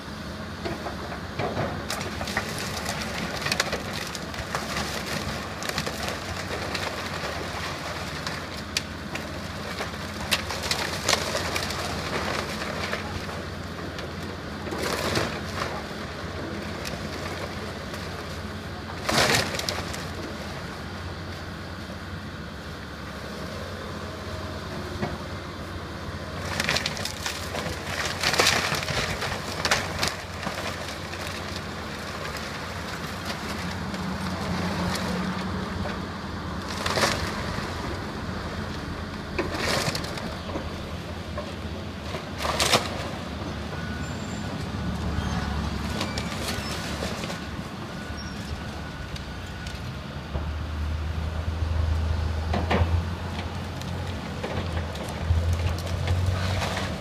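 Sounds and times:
excavator diesel engine running: 0:00.0 - 0:57.0
debris cracking and crashing: 0:00.8 - 0:20.5, 0:26.4 - 0:38.0, 0:39.2 - 0:49.8, 0:53.3 - 0:57.0.

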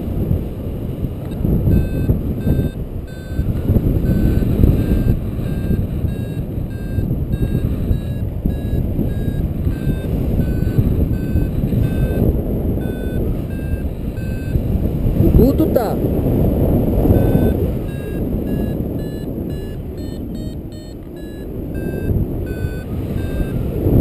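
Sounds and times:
wind rush on microphone: 0:00.0 - 0:24.0
variometer beeping: 0:00.9 - 0:24.0.

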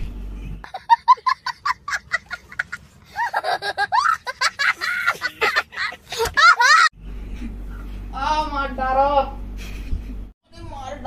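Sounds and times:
child laughing hard: 0:00.7 - 0:06.9.

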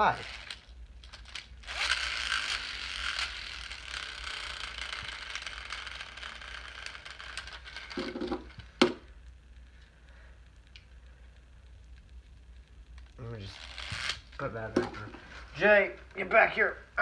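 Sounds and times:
spinner toy gear whir: 0:00.0 - 0:08.2, 0:13.5 - 0:14.2.

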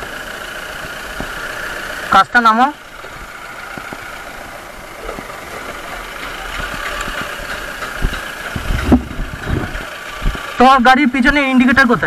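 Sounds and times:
vehicle engine idling: 0:00.0 - 0:12.0
loud thump: 0:08.1 - 0:09.7.

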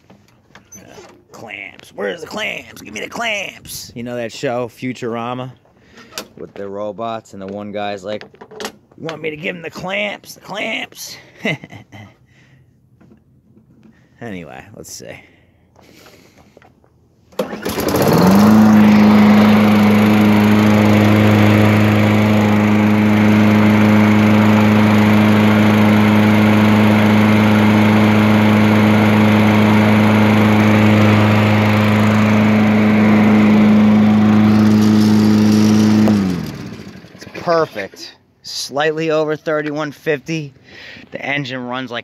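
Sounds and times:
lawn mower engine running: 0:00.2 - 0:03.6, 0:17.3 - 0:38.0.

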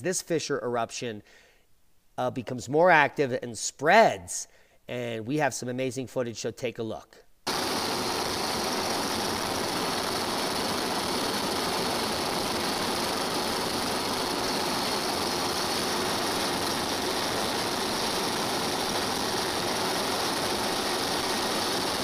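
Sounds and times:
aircraft engine drone: 0:07.5 - 0:22.0
rushing air hiss: 0:07.5 - 0:22.0.

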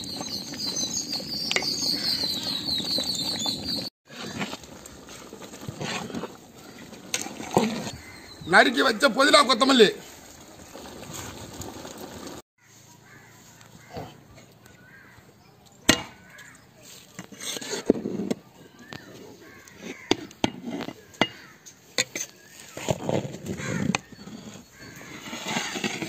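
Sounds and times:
ladle scraping a metal pot: 0:01.5 - 0:08.2, 0:17.1 - 0:18.3, 0:22.0 - 0:26.0
crows cawing: 0:12.6 - 0:15.2, 0:19.4 - 0:20.3, 0:21.0 - 0:21.7, 0:23.6 - 0:24.1.

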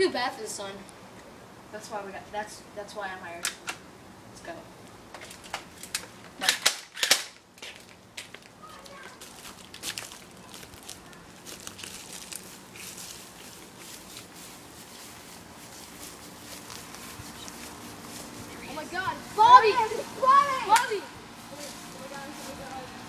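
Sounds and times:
rustling: 0:07.0 - 0:19.5.

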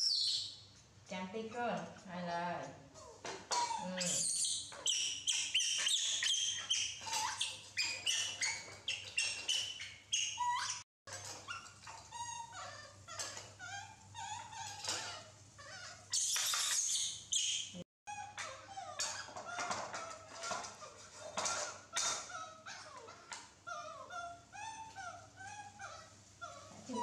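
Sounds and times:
baby monkeys squeaking and chirping: 0:00.0 - 0:00.6, 0:03.0 - 0:27.0.

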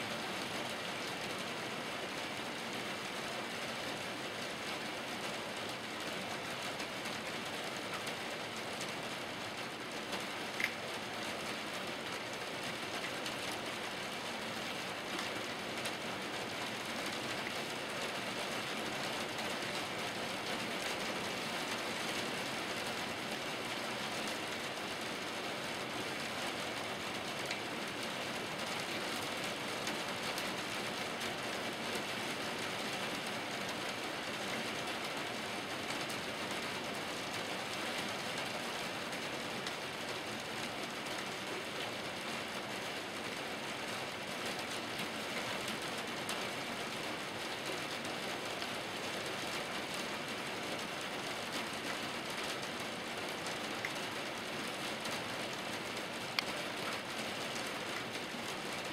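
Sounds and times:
rain drumming: 0:00.0 - 0:58.9.

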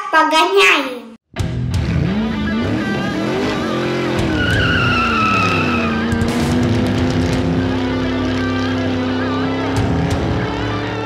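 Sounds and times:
revving car engine: 0:01.4 - 0:11.0
tire squeal: 0:02.0 - 0:09.3.

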